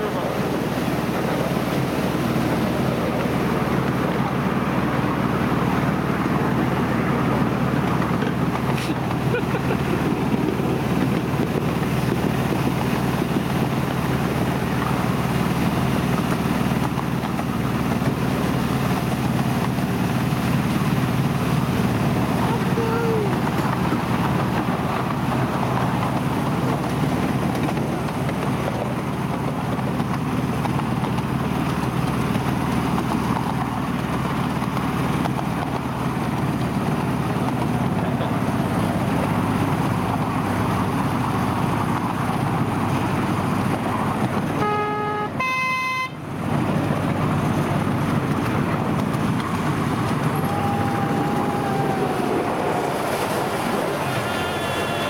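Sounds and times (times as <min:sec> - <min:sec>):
miniature train rumbling on rails: 0:00.0 - 0:55.0
two-note train horn toot: 0:44.6 - 0:46.2, 0:54.1 - 0:55.0.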